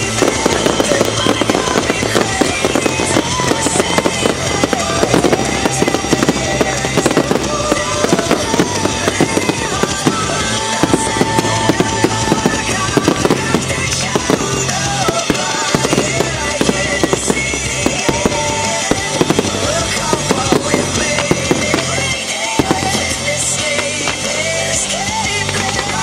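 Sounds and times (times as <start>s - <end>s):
fireworks crackling and banging: 0.0s - 26.0s
music playing: 0.0s - 26.0s.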